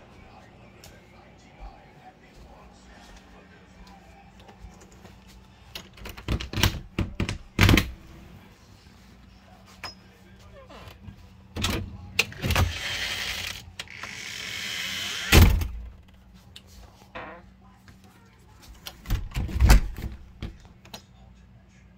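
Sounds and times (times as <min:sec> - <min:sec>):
loud door thud: 0:15.3 - 0:15.9.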